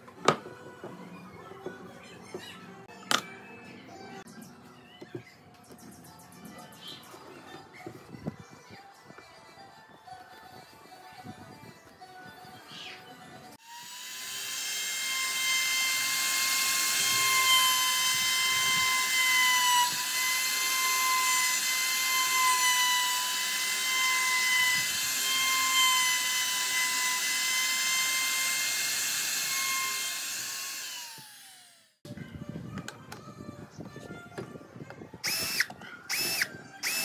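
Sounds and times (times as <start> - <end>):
router cutting wood: 13.6 - 31.9, 35.2 - 37.0.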